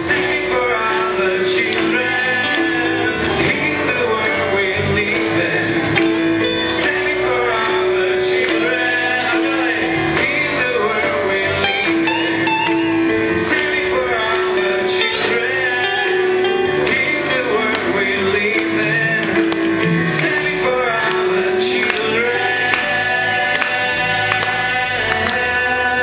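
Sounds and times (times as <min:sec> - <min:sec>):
keyboard: 0:00.0 - 0:26.0
strummed acoustic guitars: 0:00.0 - 0:26.0
choir of young voices singing: 0:21.6 - 0:26.0.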